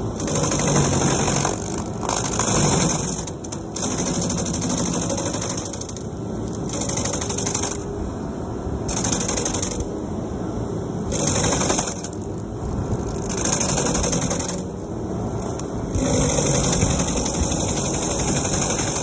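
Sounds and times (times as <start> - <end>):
stump grinder running: 0.1 - 6.0, 11.1 - 12.2, 15.4 - 19.0.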